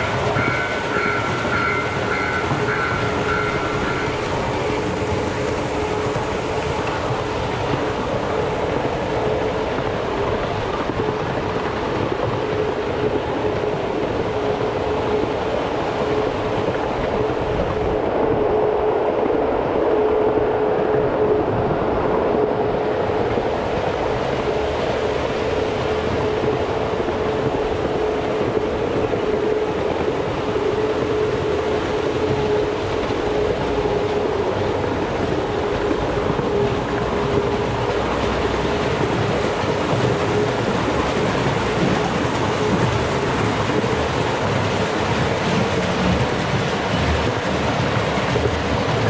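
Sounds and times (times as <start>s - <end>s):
miniature train running on track: 0.0s - 18.0s, 23.0s - 49.0s.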